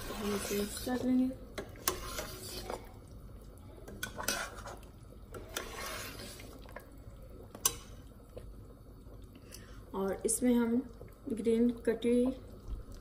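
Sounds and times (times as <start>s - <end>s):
liquid swishing in pot: 0.0s - 8.2s.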